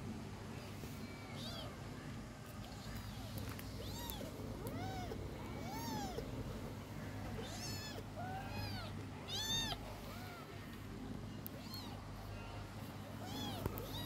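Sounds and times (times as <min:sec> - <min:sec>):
kittens mewing: 0:02.6 - 0:06.4, 0:07.0 - 0:10.7, 0:11.4 - 0:14.0.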